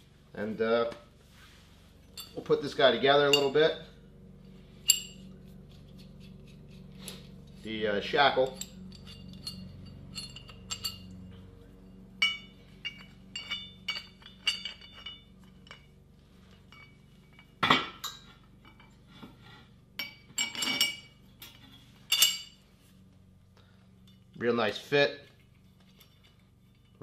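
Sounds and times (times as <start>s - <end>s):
metal shackle and bolt clinking: 2.0s - 3.8s, 4.8s - 7.7s, 8.3s - 11.3s, 12.2s - 19.0s, 20.0s - 22.6s, 25.2s - 27.0s.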